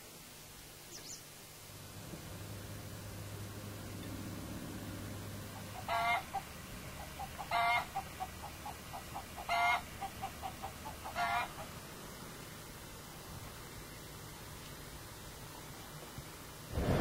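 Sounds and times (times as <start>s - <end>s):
chicken clucking: 5.6s - 11.8s.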